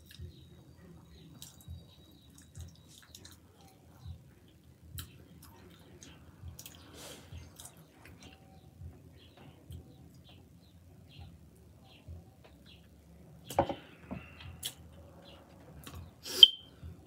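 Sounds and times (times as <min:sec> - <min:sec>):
wet chewing: 0:01.4 - 0:08.3
mouth clicks and lip smacks: 0:14.6 - 0:14.8.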